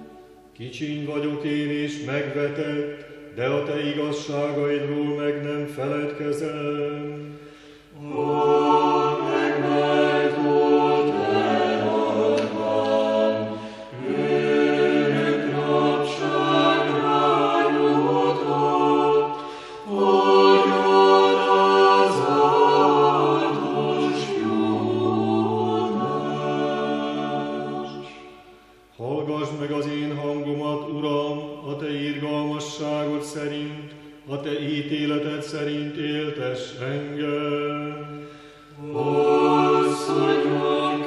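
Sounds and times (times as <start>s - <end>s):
choir singing a cappella chant: 0.0s - 41.0s
singers breathing: 7.2s - 8.0s, 13.5s - 14.0s, 19.3s - 19.9s, 38.1s - 38.8s.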